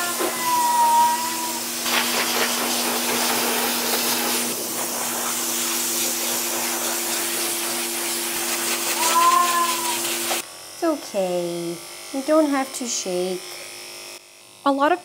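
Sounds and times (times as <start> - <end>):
cat meowing: 0.0 - 1.6, 9.0 - 10.1
pet dryer blowing air: 0.0 - 13.8.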